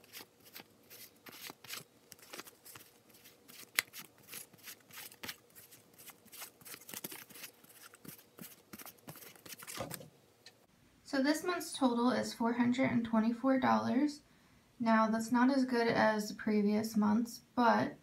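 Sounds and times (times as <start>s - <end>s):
paper bills rustling: 0.0s - 10.1s.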